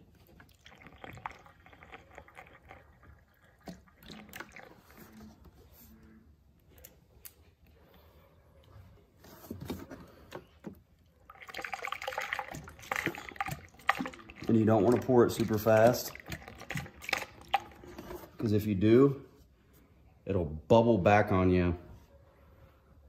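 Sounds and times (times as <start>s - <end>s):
liquid trickling through a funnel: 0.0s - 5.6s, 11.1s - 18.5s.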